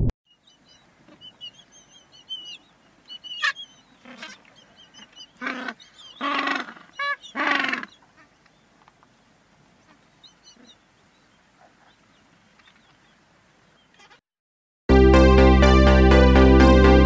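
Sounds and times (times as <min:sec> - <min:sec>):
small birds twittering: 0:00.3 - 0:14.2
penguins braying: 0:03.3 - 0:08.3.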